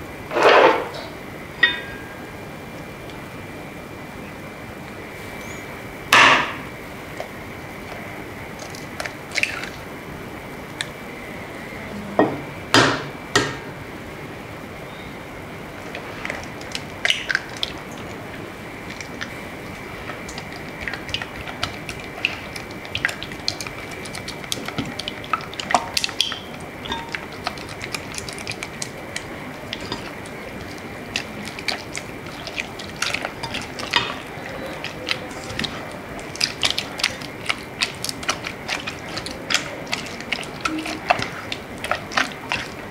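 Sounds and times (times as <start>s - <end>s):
spatula squelching through dough: 15.8s - 42.9s.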